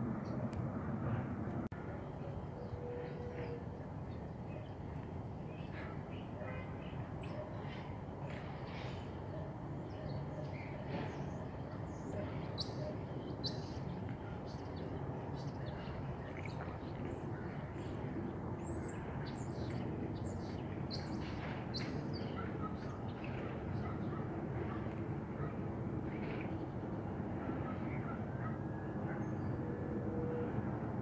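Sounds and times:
small birds chirping: 10.1 - 17.5.

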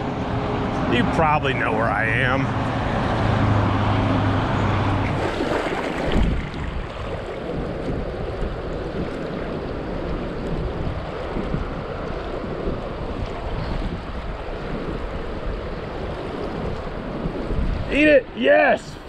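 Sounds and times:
highway traffic hum: 0.0 - 19.0
creek flowing over rocks: 4.6 - 7.9.

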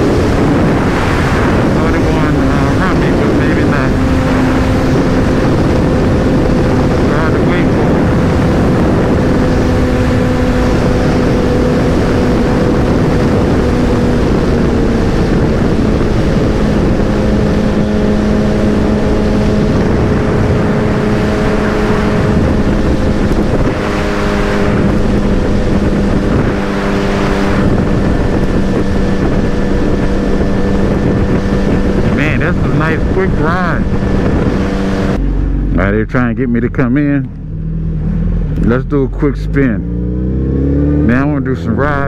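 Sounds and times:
motorcycle engine running: 0.0 - 42.0
wind rushing over microphone: 0.0 - 42.0.

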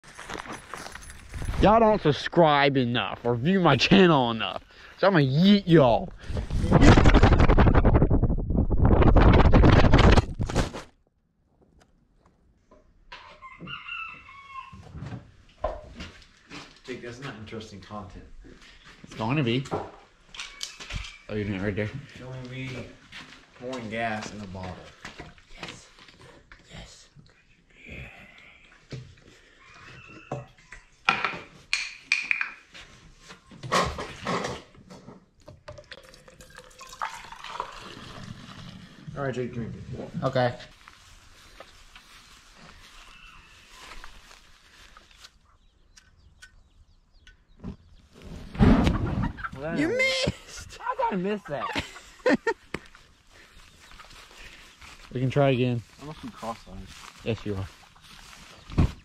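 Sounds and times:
wind rush and buffeting: 6.1 - 10.8
rooster crowing: 13.4 - 14.8.

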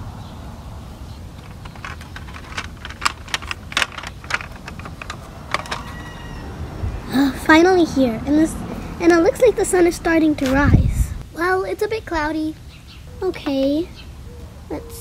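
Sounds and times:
toy truck wheels rolling over dirt: 1.3 - 6.4.

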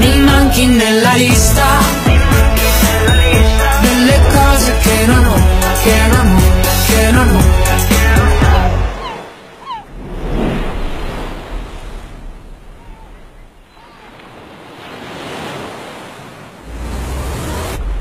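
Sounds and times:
music: 0.0 - 9.0.

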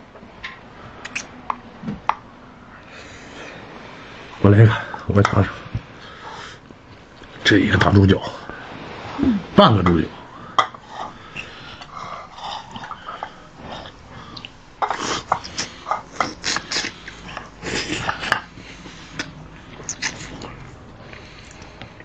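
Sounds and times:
wet slurps and lip smacks: 1.0 - 1.3, 19.1 - 20.6.

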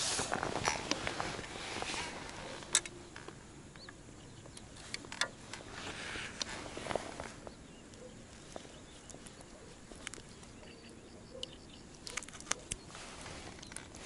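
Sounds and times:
soft rustling: 0.0 - 3.4, 4.7 - 10.7, 12.1 - 14.0.

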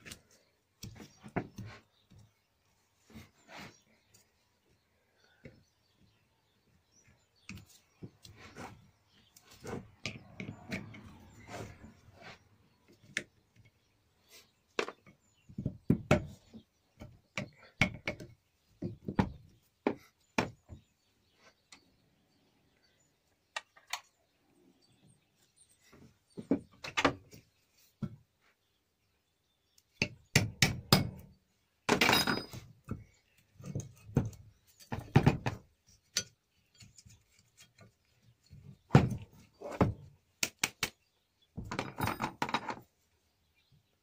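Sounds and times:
metal parts knocking and clinking: 31.9 - 32.6.

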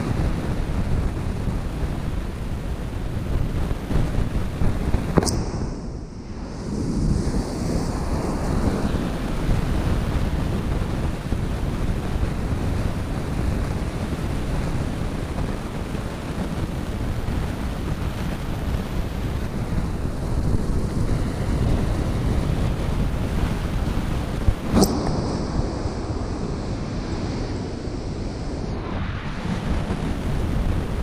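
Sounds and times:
wind rumbling on microphone: 0.0 - 31.0
ocean surf breaking on beach: 6.3 - 31.0.

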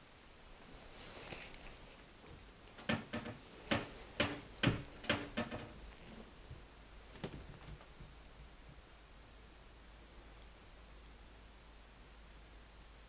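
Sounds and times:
sharp wooden knocks: 2.8 - 5.8.

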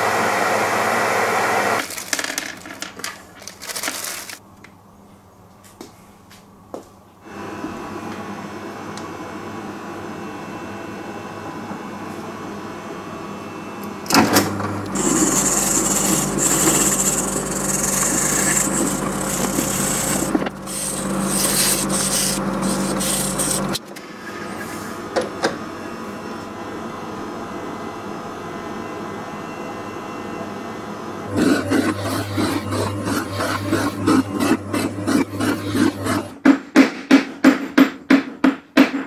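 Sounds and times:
steady background hum: 1.8 - 39.0
drill press motor hum: 14.1 - 23.9, 31.3 - 36.4
sandpaper rasping on wood: 15.0 - 23.8, 31.4 - 36.3.

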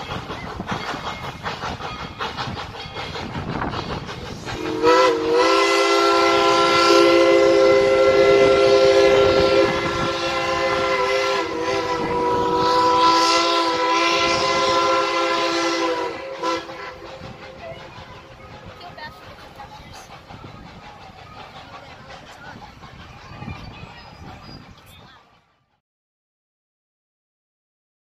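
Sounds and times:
steam locomotive whistle: 3.9 - 18.4.

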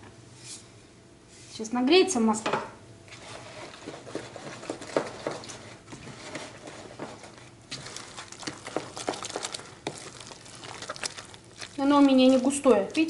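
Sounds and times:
fork stirring batter in bowl: 3.1 - 13.0.

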